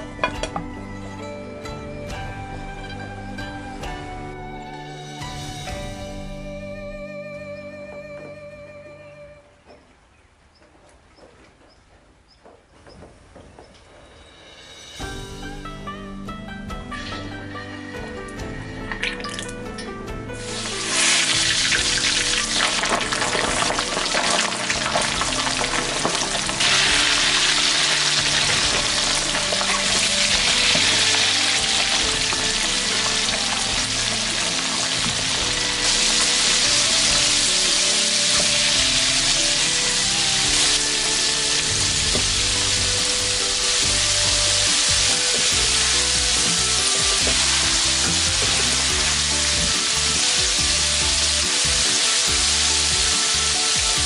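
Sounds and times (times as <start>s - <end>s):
chicken deep-frying in hot oil: 20.4s - 54.0s.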